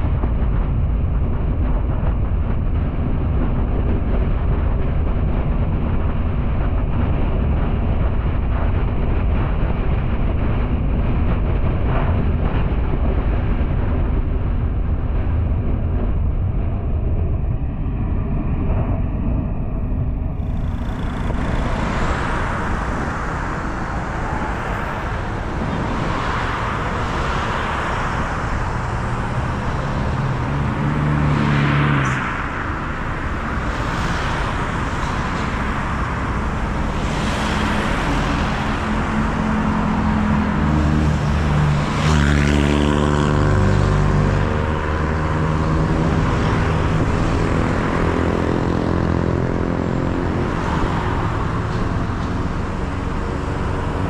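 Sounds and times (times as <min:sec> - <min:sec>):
car engine and tyre noise: 0:00.0 - 0:54.0
vehicles passing: 0:20.1 - 0:54.0.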